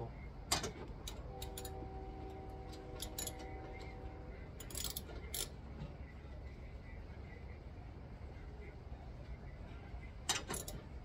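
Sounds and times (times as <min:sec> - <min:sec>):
faint hum of mixed tones: 0:00.0 - 0:11.0
clicks of parts being handled: 0:10.3 - 0:10.8.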